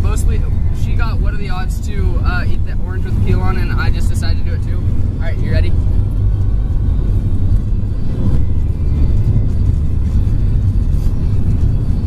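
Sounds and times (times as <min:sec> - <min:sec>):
car interior road rumble: 0:00.0 - 0:12.0.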